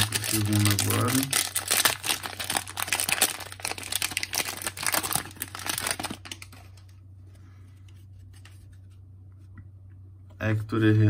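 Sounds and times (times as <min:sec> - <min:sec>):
plastic wrapper crinkling and tearing: 0:00.0 - 0:07.0.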